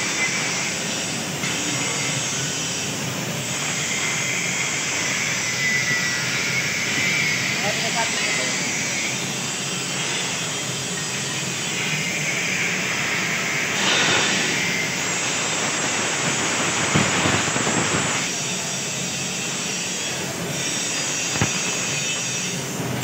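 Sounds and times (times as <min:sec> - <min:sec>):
workshop hissing din: 0:00.1 - 0:23.0
hissing and crackling: 0:12.9 - 0:18.6, 0:19.2 - 0:23.0.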